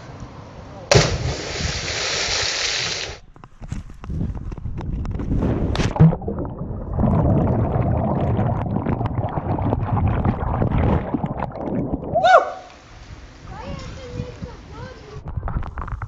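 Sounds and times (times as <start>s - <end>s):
splash into water: 0.9s - 3.2s
underwater gurgling and rumbling: 4.4s - 12.3s
person shouting: 12.2s - 12.7s.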